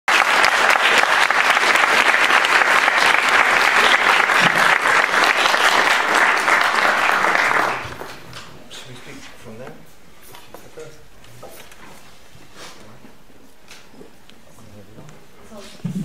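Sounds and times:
audience applauding: 0.1s - 8.5s.

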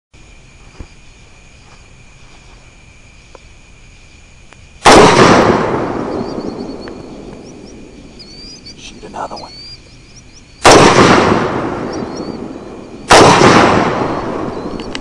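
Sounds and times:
faint high-pitched whine: 0.2s - 15.0s
rifle shot with rolling echo: 4.8s - 8.8s, 9.5s - 15.0s.

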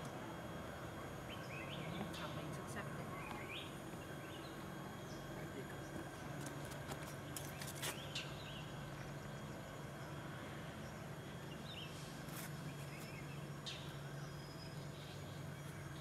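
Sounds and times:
steady low hum: 0.0s - 16.0s
bird chirps: 1.2s - 2.5s.

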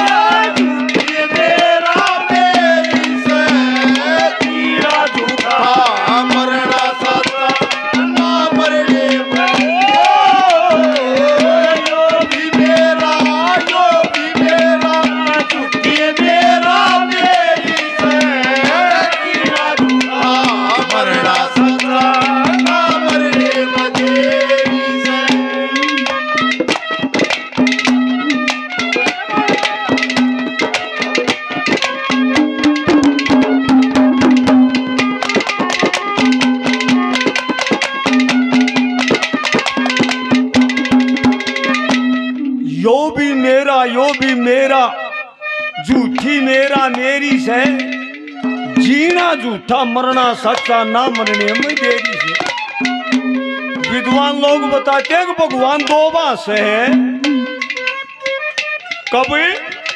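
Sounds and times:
hand drums playing: 0.0s - 45.0s, 45.8s - 59.9s
held drone note: 27.8s - 30.4s, 57.0s - 58.1s.

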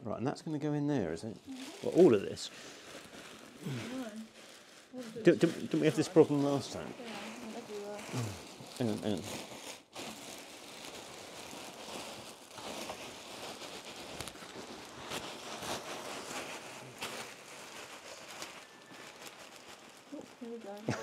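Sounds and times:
polystyrene beads pattering: 1.2s - 21.0s
plastic sack rustling: 1.4s - 21.0s.

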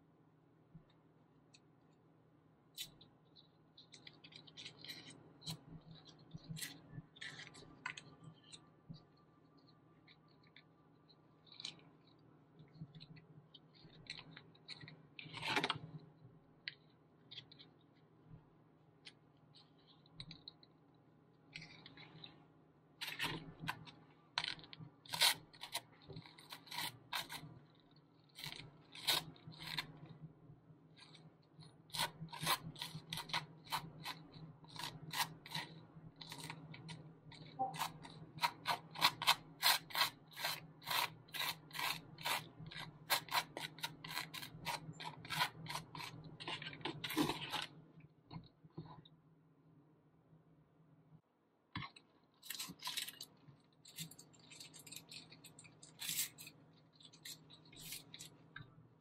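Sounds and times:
knife scraping butter on toast: 31.9s - 47.5s.

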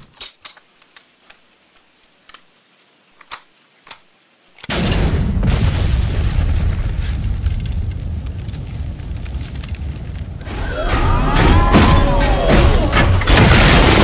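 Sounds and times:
loud explosion: 4.7s - 14.0s.

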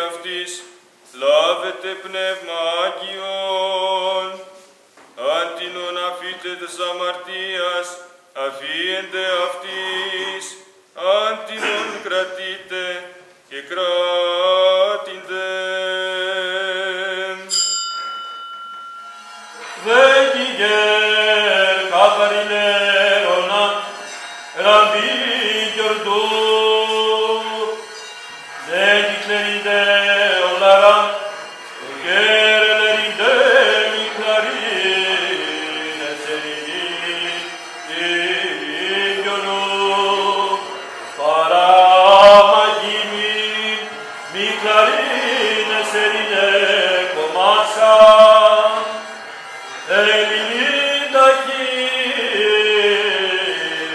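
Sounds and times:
priest chanting: 0.0s - 17.6s, 19.3s - 53.9s.

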